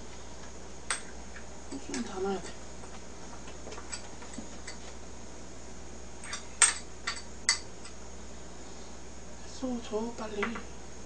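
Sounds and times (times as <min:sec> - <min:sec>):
tableware clicking and clinking: 0:06.2 - 0:07.6.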